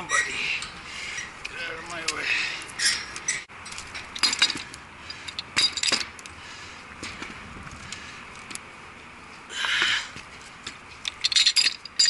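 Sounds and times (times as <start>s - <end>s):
metal clinking and knocking: 2.8s - 6.1s, 11.0s - 12.0s.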